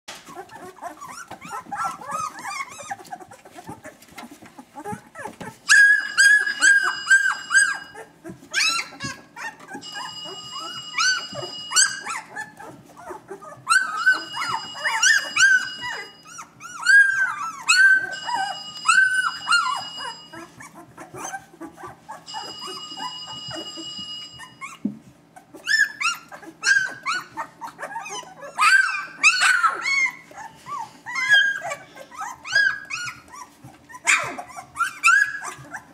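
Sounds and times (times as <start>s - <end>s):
puppies squealing and whimpering: 0.1s - 35.9s
steady high tone: 22.3s - 24.6s.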